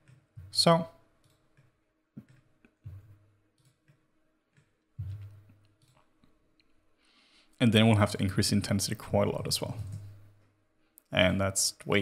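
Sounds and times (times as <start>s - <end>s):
soft low thumps: 0.2s - 1.0s, 2.2s - 3.4s, 4.9s - 5.7s
computer mouse clicks: 1.2s - 2.8s, 3.6s - 4.8s, 5.5s - 6.7s.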